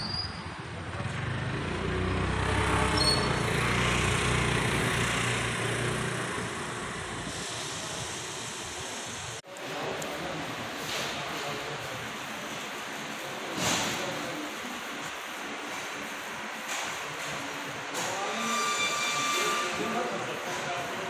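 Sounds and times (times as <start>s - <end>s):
passing vehicle rumble: 0.9s - 9.3s.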